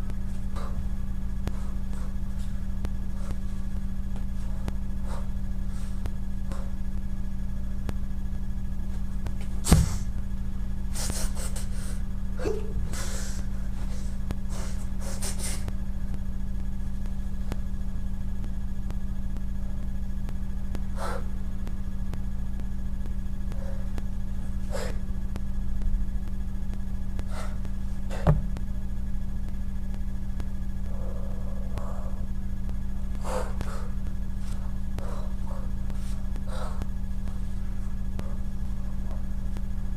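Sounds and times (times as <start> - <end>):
low electrical hum: 0.0 - 39.9
short puffs of air: 14.5 - 15.7.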